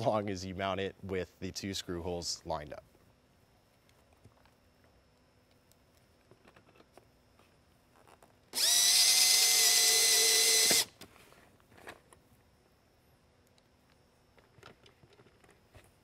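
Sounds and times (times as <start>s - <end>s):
cordless drill whining: 8.5s - 11.0s.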